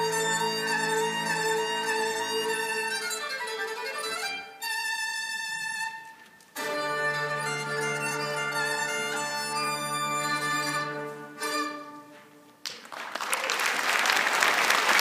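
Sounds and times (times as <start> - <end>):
audience applause: 12.6 - 15.0.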